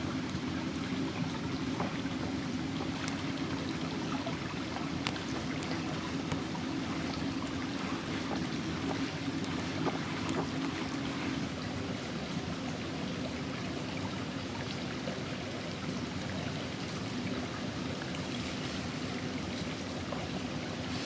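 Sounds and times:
flowing stream: 0.0 - 21.0.

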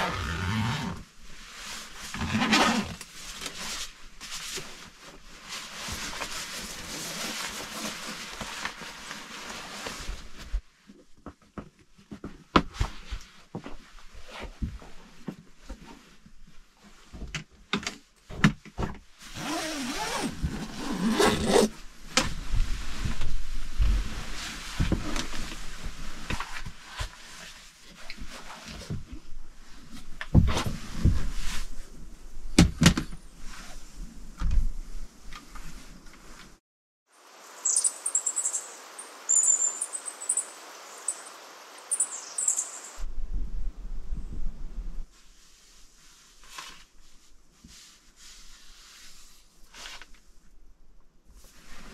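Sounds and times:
sleeping bag fabric rustling: 0.0 - 10.6, 19.2 - 21.8
steady outdoor hiss: 37.1 - 50.4
high bird chirps: 37.5 - 43.0.

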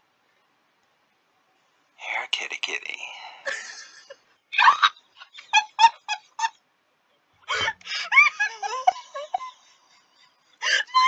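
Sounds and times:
women laughing: 3.5 - 6.6, 7.5 - 11.0.

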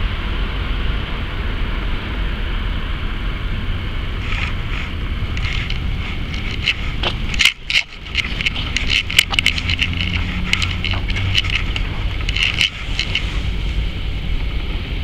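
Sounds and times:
wind rumbling on microphone: 0.0 - 15.0
scattered clicks and taps: 4.3 - 13.4.

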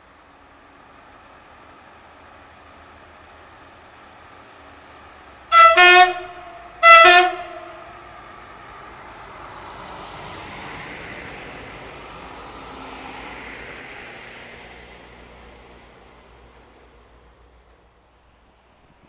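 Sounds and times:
diesel engine and wheels passing: 0.0 - 19.0
train horn blasts: 5.5 - 8.2.

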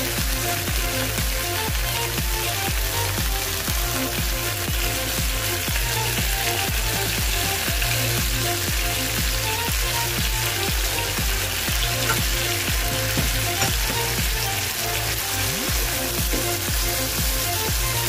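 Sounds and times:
background music with steady beat: 0.0 - 18.0
chicken sizzling in a frying pan: 0.0 - 18.0
sauce pouring: 0.0 - 18.0.

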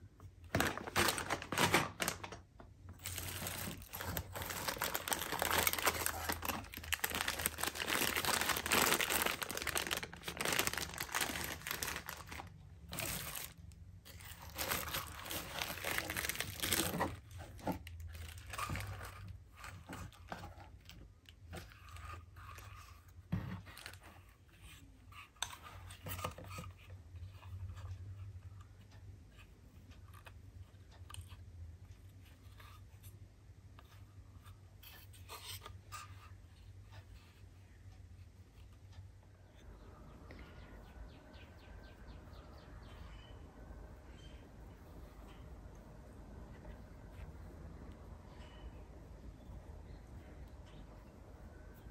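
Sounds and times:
plastic packaging crinkling: 0.5 - 20.2.

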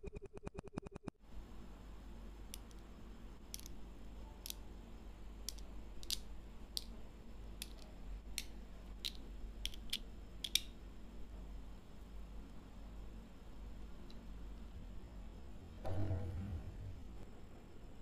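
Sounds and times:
magnetic balls clicking together: 2.5 - 2.9, 3.5 - 3.8, 4.4 - 4.6, 5.4 - 7.0, 7.6 - 10.7.

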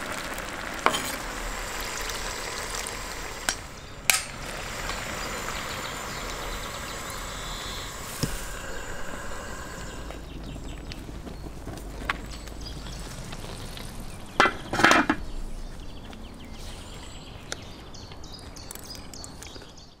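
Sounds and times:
eggs sizzling in pan: 0.0 - 11.8
metal lid clanking on pan: 3.5 - 4.4, 14.4 - 15.2.

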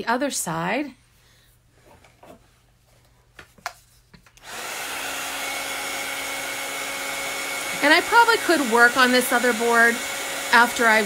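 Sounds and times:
heat tool blowing hum: 4.4 - 11.0.

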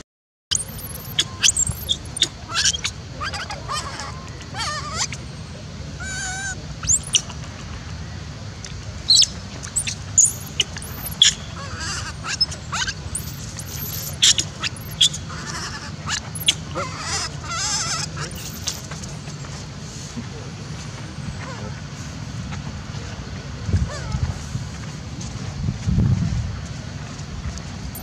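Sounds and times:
baby monkey squealing: 0.5 - 5.3, 6.0 - 7.3, 9.1 - 18.9.

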